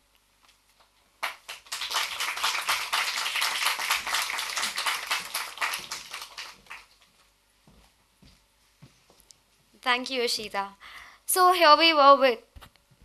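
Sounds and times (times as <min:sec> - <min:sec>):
audience applauding: 0:01.2 - 0:07.0.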